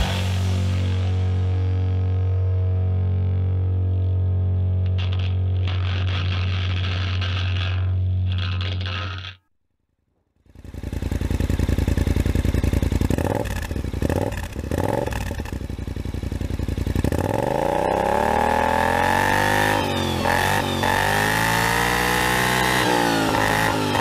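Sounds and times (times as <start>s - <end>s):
music: 0.0s - 9.0s
scooter engine idling and revving: 10.4s - 24.0s.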